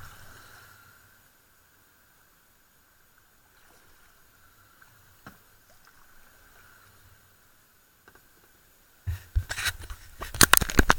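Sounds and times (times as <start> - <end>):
paddle strokes: 8.0 - 10.9.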